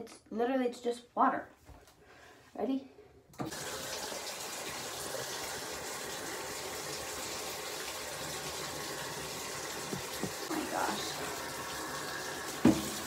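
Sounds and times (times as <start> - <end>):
water gushing into bathtub: 3.4 - 13.0.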